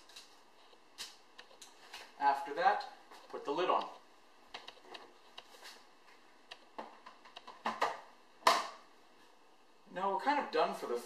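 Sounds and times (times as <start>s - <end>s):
plastic lid snapping shut: 7.5s - 8.8s.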